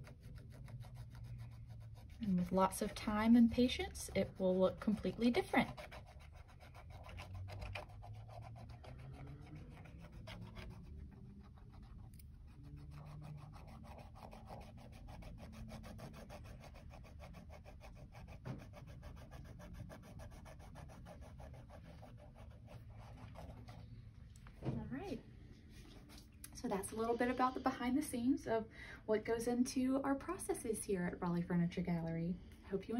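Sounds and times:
cotton swab rubbing canvas: 0:00.0 - 0:24.0.

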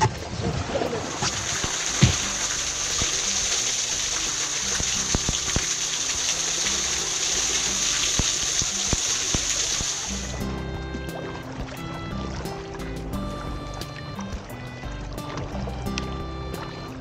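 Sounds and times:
water pouring down a waterfall: 0:00.0 - 0:10.4.

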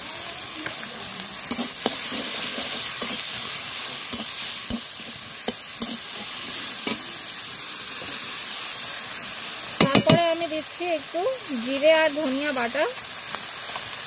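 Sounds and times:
masala sizzling in a pan: 0:00.0 - 0:14.0
spatula stirring and scraping: 0:01.4 - 0:07.1.

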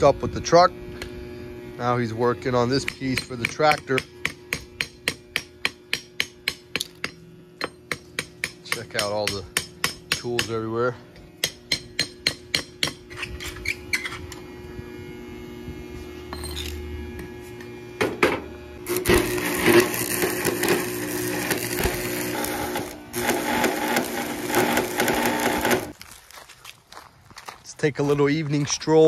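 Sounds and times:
steady hum: 0:00.0 - 0:26.0
hammer tapping on metal: 0:02.9 - 0:10.6, 0:11.4 - 0:13.0
welding arc crackling: 0:18.8 - 0:26.0.

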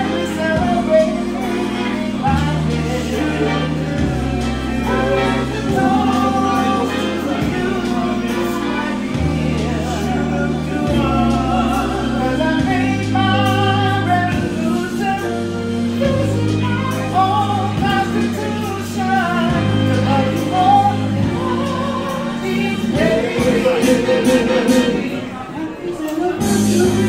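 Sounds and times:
man singing into a microphone: 0:00.0 - 0:15.4
backing track with bass chords: 0:00.0 - 0:25.3, 0:26.3 - 0:27.0.

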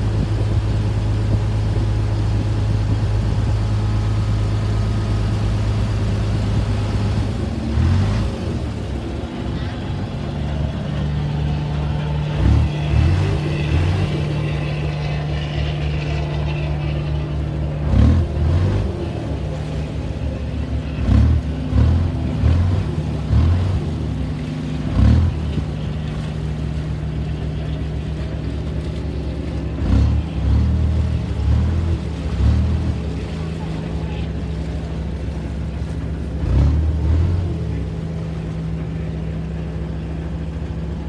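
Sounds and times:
wind buffeting microphone: 0:00.0 - 0:14.0
ferry diesel engine droning: 0:00.0 - 0:41.0.

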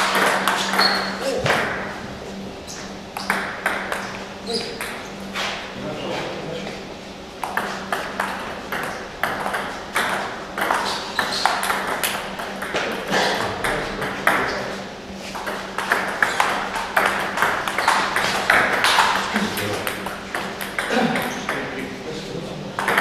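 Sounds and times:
ping-pong ball bouncing on table: 0:00.0 - 0:01.8, 0:03.2 - 0:05.0, 0:07.4 - 0:14.6, 0:15.4 - 0:21.8, 0:22.8 - 0:23.0
ping-pong ball on paddles: 0:00.0 - 0:01.8, 0:02.7 - 0:05.2, 0:07.4 - 0:14.7, 0:15.4 - 0:21.8, 0:22.8 - 0:23.0.

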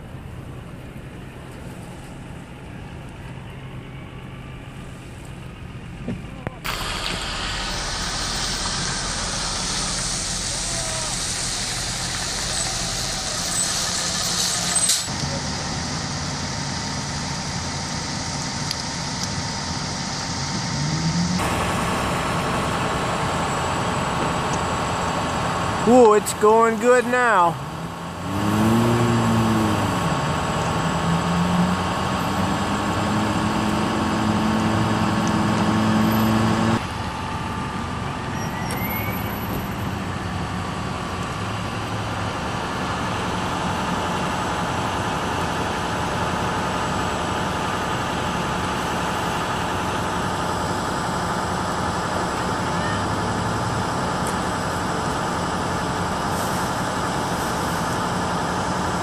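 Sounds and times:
fire engine running pump: 0:00.0 - 0:59.0
steady humming tone: 0:06.6 - 0:13.4.

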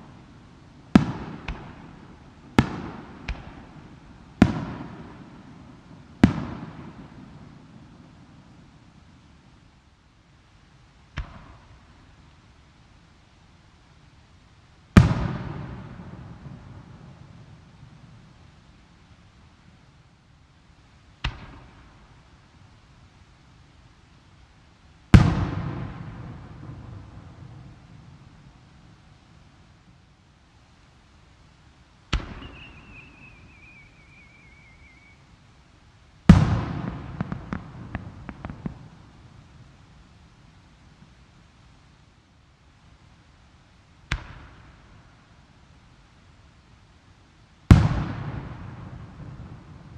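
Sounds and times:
firework whistle: 0:32.2 - 0:35.3.

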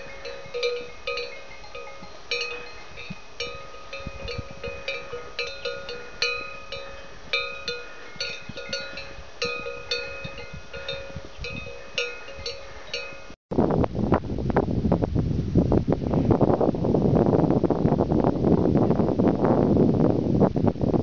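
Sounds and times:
livestock bells clanking: 0:00.0 - 0:13.4.

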